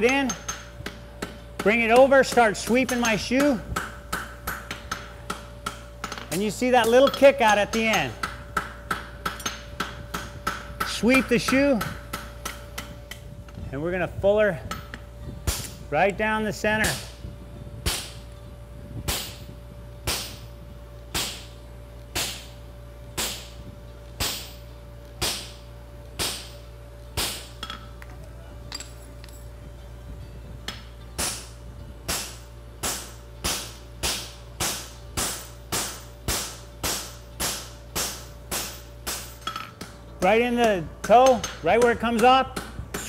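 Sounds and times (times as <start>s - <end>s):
hammer striking steel: 0.0s - 13.2s, 25.2s - 25.6s, 30.7s - 43.0s
light metal clinks: 28.7s - 29.6s.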